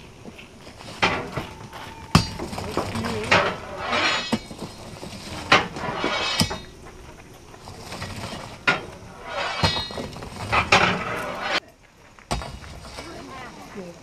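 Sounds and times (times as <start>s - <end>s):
scraping hisses: 0.6s - 11.6s
metal tool clanking: 0.8s - 6.9s, 7.6s - 11.6s
sharp metal knocks: 5.4s - 6.8s, 8.6s - 11.6s.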